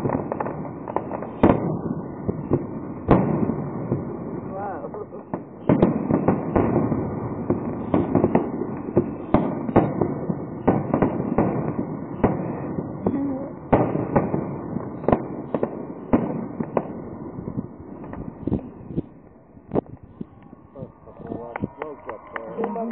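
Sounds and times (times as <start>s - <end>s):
fireworks bursting with sharp bangs: 0.0s - 22.9s
rumble of overlapping reports: 18.1s - 22.9s.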